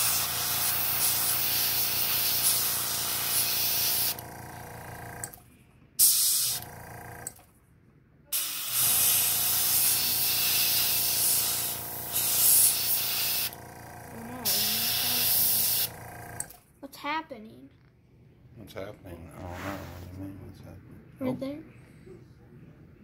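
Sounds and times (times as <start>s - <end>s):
airbrush spraying hiss: 0.0s - 4.2s, 8.4s - 13.5s, 14.4s - 15.9s.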